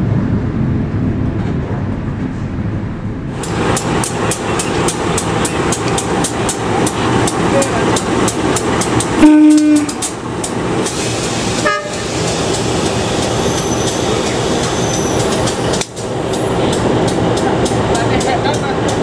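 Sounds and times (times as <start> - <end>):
train running: 0.0 - 19.0
locomotive horn toot: 9.2 - 10.1, 11.6 - 12.2.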